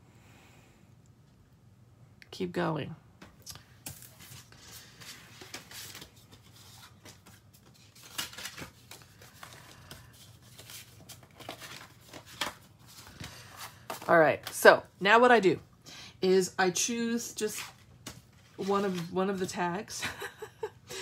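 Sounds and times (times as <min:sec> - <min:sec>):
paper rustling: 0:03.8 - 0:14.6, 0:17.5 - 0:19.5.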